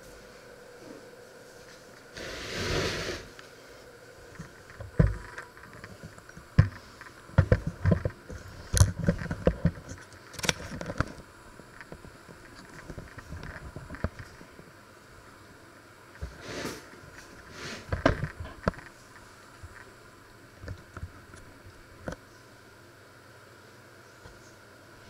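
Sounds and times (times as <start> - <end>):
brief rushing hiss: 2.2 - 3.3.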